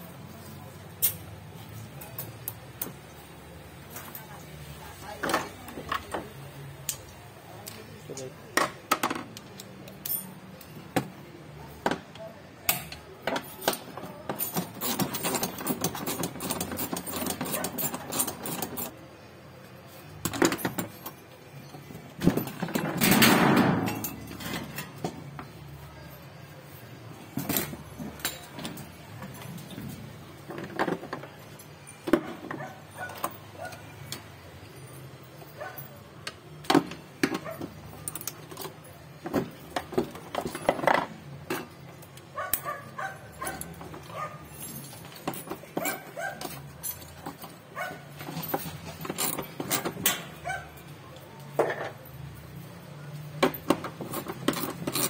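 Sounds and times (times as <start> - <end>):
metal parts and tools rattling: 0.4 - 55.0.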